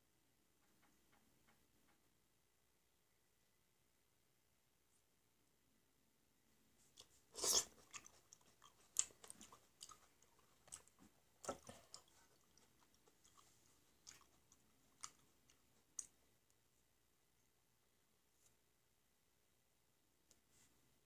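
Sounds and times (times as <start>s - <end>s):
wet chewing: 7.0s - 16.2s.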